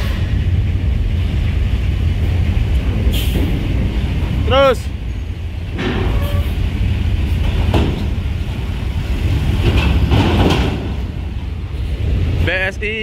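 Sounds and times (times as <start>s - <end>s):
bus diesel engines rumbling: 0.0s - 13.0s
sharp knocks: 7.4s - 8.2s.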